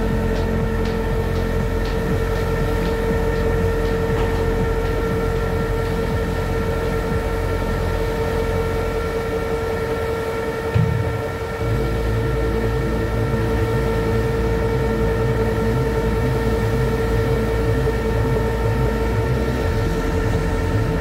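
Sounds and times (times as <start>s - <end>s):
constant low rumble: 0.0s - 21.0s
winch whining: 0.0s - 21.0s
short low bump: 10.7s - 11.4s.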